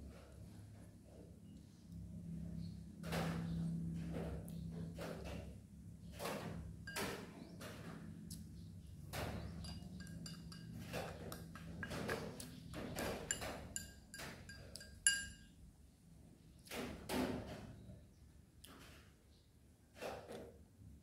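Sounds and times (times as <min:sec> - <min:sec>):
chopsticks clinking on porcelain bowl: 0:09.5 - 0:12.2, 0:12.9 - 0:15.5.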